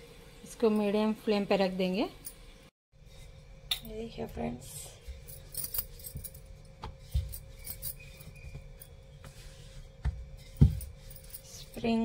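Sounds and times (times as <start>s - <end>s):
dull thumps of objects set down: 10.0s - 11.0s.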